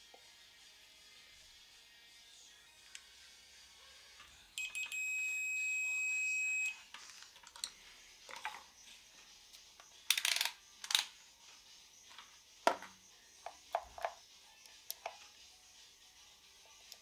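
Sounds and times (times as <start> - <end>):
wires clicking against metal box: 10.1 - 11.1.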